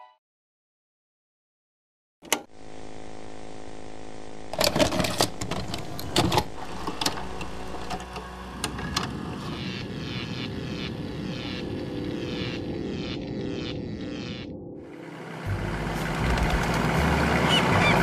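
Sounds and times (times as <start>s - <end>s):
tape player click: 2.2s - 2.5s
tape hiss with low hum: 2.6s - 17.8s.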